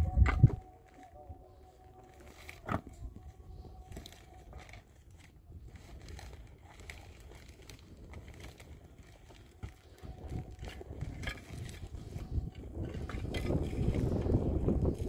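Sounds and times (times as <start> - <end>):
wind rumble on microphone: 0.0 - 15.0
plastic sheeting rustling: 3.5 - 12.5.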